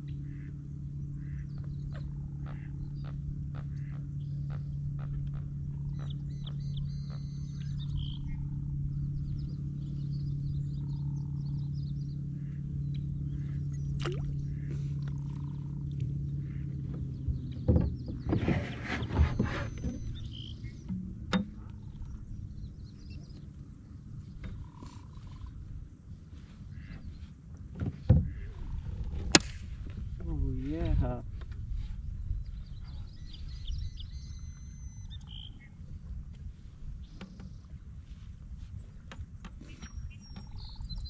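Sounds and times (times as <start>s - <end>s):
steady low hum: 0.0s - 41.0s
faint chirping animal calls: 0.2s - 8.5s, 24.4s - 25.8s.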